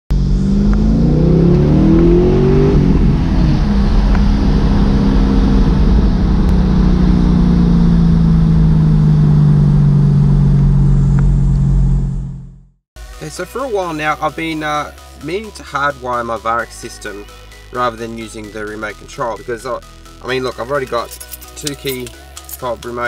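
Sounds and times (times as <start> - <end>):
car engine revving and droning: 0.1 - 12.8.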